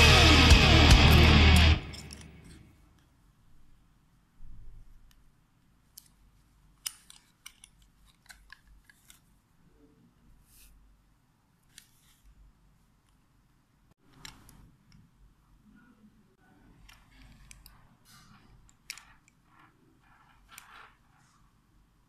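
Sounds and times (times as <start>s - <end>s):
small plastic clicks: 6.8s - 9.2s, 18.6s - 19.6s.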